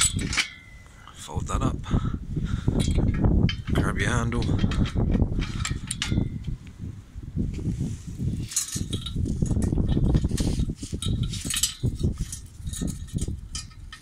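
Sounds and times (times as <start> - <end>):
metal pin and chain clinking: 8.4 - 14.0.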